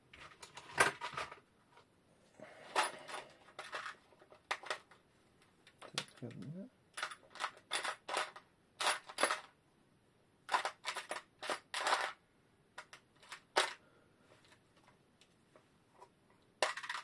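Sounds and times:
small metal parts clinking: 0:02.7 - 0:05.0, 0:05.7 - 0:09.6, 0:10.5 - 0:12.2, 0:12.8 - 0:13.8, 0:16.6 - 0:17.0.

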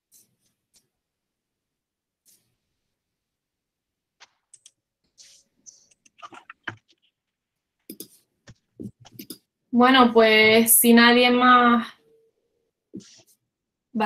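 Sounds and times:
typing on computer keyboard: 0:04.2 - 0:04.8.

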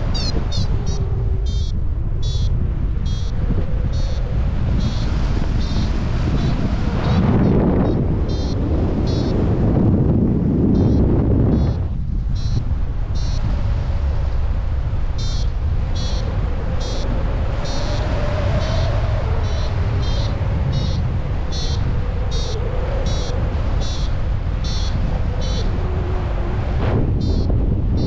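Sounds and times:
wind buffeting microphone: 0:00.0 - 0:28.0
variometer short high beeps: 0:00.1 - 0:04.2, 0:04.8 - 0:09.4, 0:10.8 - 0:11.8, 0:12.4 - 0:12.6, 0:13.2 - 0:13.4, 0:15.2 - 0:17.9, 0:19.4 - 0:25.6, 0:27.2 - 0:28.0.

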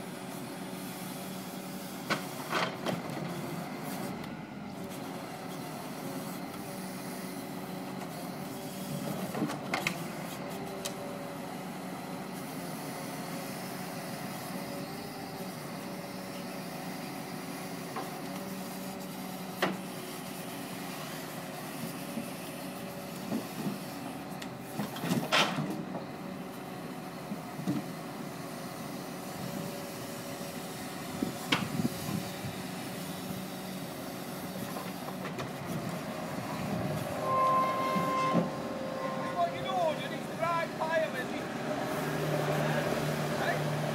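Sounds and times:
hydraulic crane running: 0:22.1 - 0:43.9.

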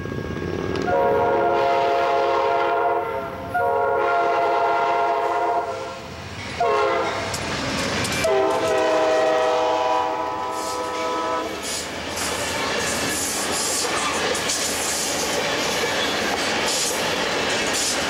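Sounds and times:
train wheels rolling: 0:00.0 - 0:01.5, 0:06.1 - 0:18.0
train air horn blasts: 0:00.9 - 0:07.3, 0:08.2 - 0:11.6.

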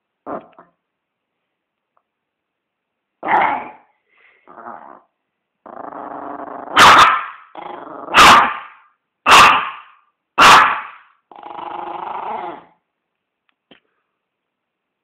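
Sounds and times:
dog growling: 0:04.5 - 0:06.8, 0:07.5 - 0:08.2, 0:11.3 - 0:12.8
dog barking: 0:06.7 - 0:07.4, 0:08.1 - 0:11.0.

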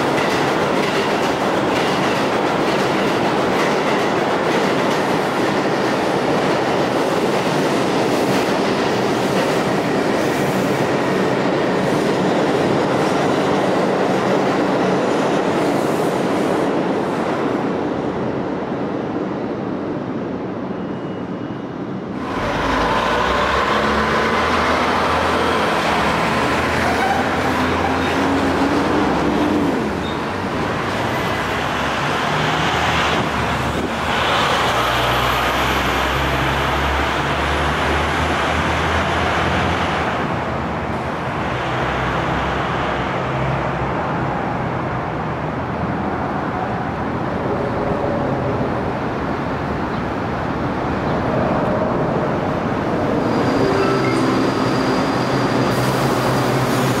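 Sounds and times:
road traffic: 0:20.1 - 0:57.0.

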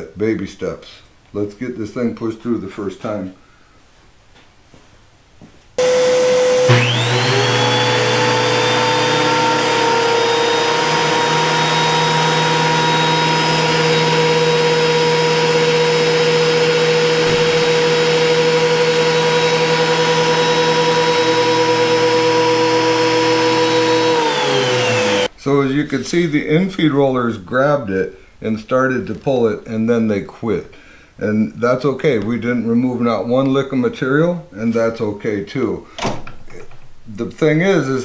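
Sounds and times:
thickness planer motor whine: 0:05.8 - 0:25.3.

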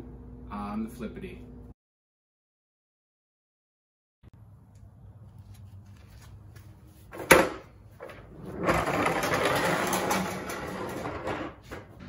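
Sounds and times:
caster wheels rattling on concrete: 0:07.1 - 0:12.0.

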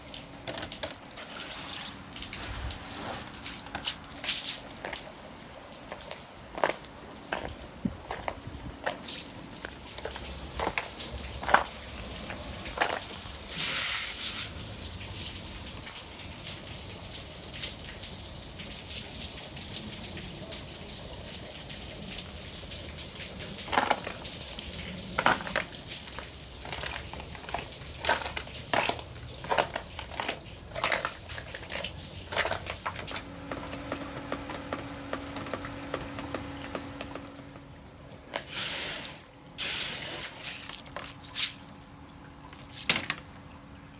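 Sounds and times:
dripping meltwater: 0:00.0 - 0:43.9.

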